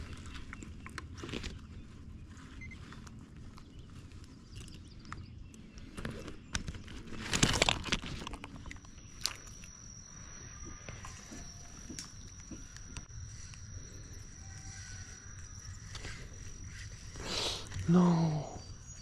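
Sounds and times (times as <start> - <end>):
high-pitched whine: 6.3 - 19.0.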